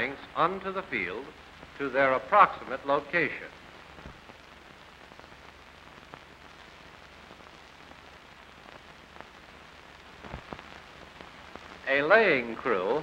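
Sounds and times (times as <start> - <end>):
film soundtrack hiss and crackle: 0.0 - 13.0.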